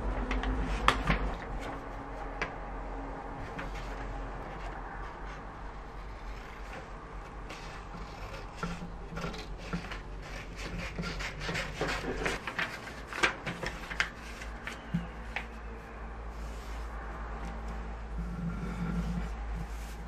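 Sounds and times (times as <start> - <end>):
paper rustling and crinkling: 6.2 - 15.7.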